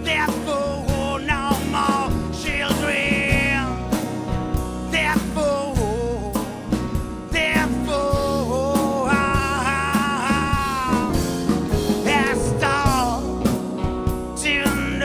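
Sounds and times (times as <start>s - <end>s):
steady bass: 0.0s - 15.0s
drum hits: 6.6s - 15.0s
bending lead guitar notes: 8.9s - 15.0s.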